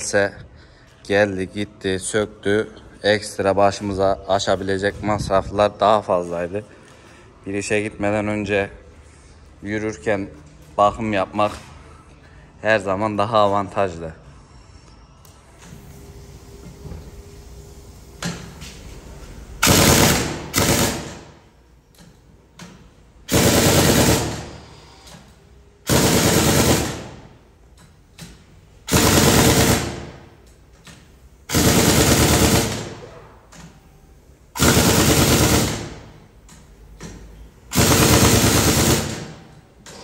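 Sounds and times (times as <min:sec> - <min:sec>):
pneumatic impact wrench rattling: 0:19.6 - 0:33.8, 0:34.5 - 0:40.0.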